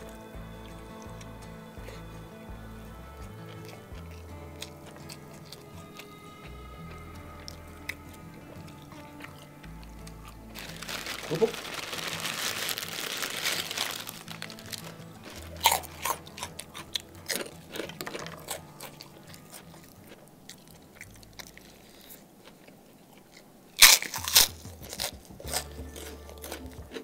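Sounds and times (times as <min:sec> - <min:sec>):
crunching crackers: 0:00.0 - 0:27.0
plastic bag rustling: 0:10.5 - 0:16.6.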